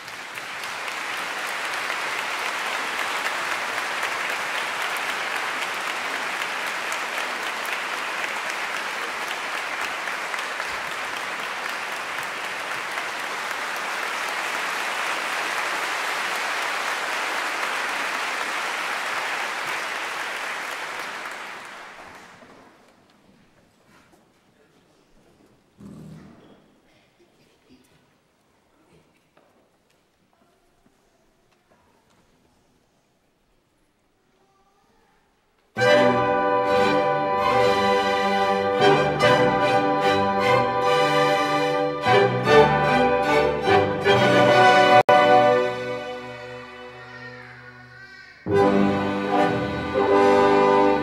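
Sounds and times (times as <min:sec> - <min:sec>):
audience applauding: 0:00.0 - 0:22.8.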